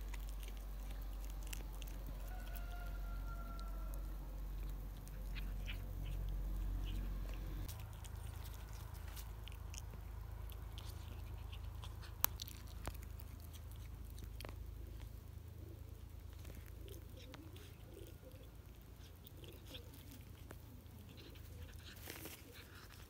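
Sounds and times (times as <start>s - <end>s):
cat chewing with crunches: 0.0s - 23.0s.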